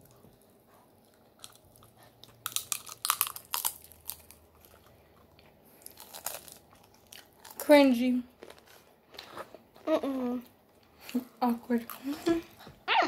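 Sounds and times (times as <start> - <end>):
tortilla chips crunching: 1.1 - 7.8, 8.4 - 9.9.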